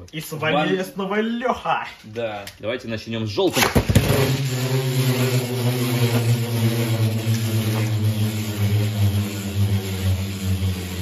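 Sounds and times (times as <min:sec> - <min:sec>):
spinning tops whirring: 0:03.5 - 0:11.0.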